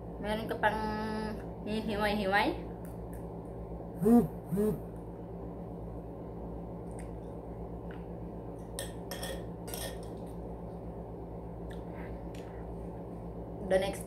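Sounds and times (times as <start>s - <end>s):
steady low hum: 0.0s - 14.0s
spoon clinking on ceramic plate: 8.8s - 10.1s.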